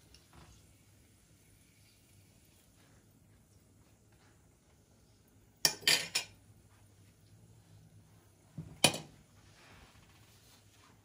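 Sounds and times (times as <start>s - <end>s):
metal tongs clinking on cookware: 5.6s - 6.4s.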